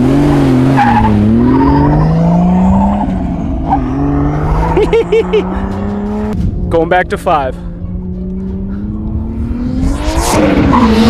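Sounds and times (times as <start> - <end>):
car engine revving: 0.0 - 11.0
man laughing: 4.6 - 5.8.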